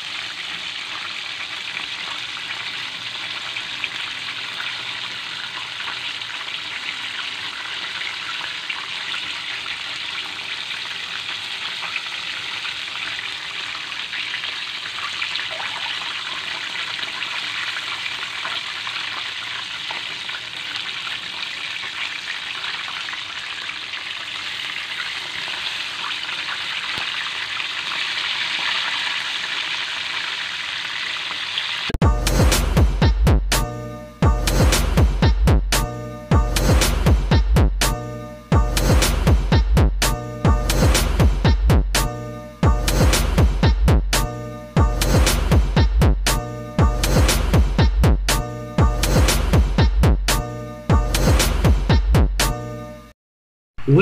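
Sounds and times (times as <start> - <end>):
chicken deep-frying in oil: 0.0 - 32.9.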